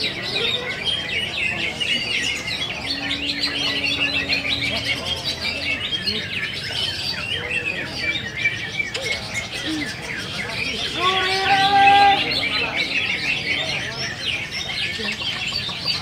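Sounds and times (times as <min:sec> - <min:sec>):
birds chirping and trilling: 0:00.0 - 0:16.0
low hum: 0:01.9 - 0:06.8.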